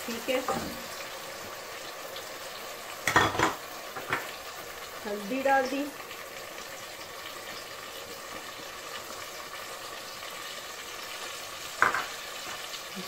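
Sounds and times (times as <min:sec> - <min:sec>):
vegetables sizzling in oil: 0:00.0 - 0:13.0.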